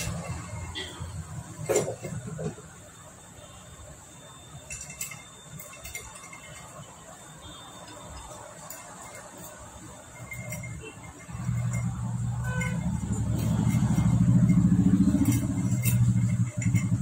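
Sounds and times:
engine rumble: 0.0 - 2.8, 10.1 - 17.0
light metallic clinks: 4.3 - 17.0.

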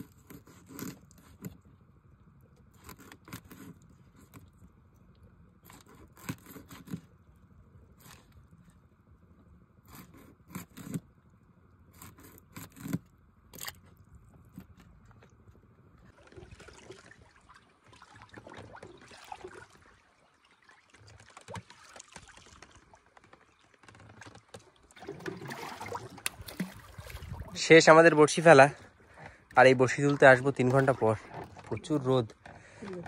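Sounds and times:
water lapping against boat: 0.0 - 33.0
scissors snipping fish: 5.6 - 7.0, 12.0 - 13.8.

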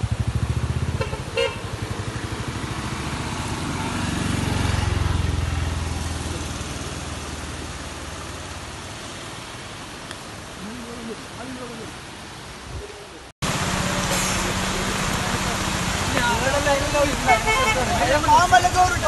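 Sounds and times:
vehicle engine passing: 0.0 - 9.6, 13.4 - 19.0.

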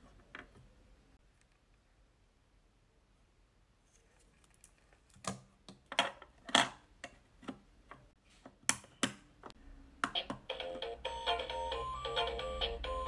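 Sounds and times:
simple electronic toy tune: 10.5 - 13.0.

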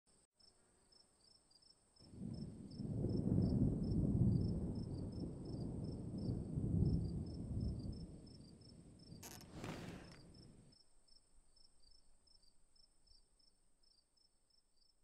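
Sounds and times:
insects chirping: 5.0 - 15.0
high insect trill: 8.5 - 14.9.

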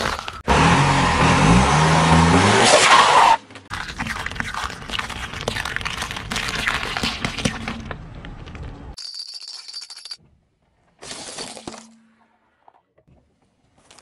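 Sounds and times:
eggs cracking under tyre: 3.7 - 9.0.

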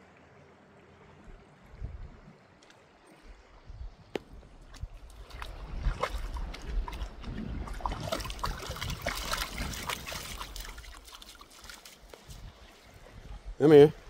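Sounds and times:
water splashing and trickling: 0.0 - 14.0.

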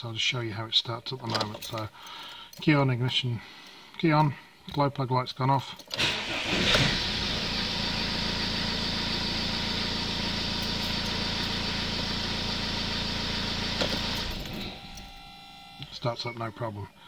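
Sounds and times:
diesel car engine idling: 6.2 - 15.4.

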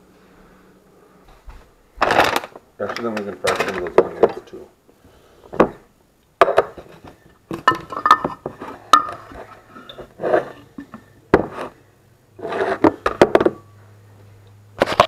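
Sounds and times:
dishes and utensils clinking: 7.5 - 11.0.

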